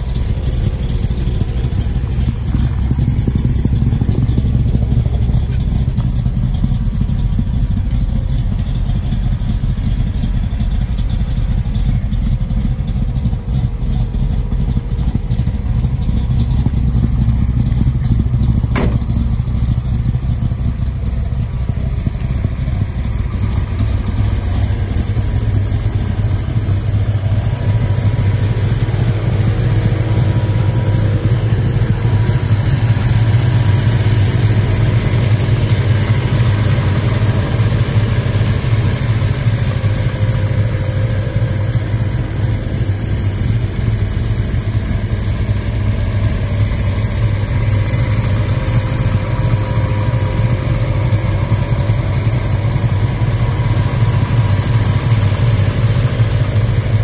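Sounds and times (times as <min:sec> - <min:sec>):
engine idling: 0:00.0 - 0:57.0.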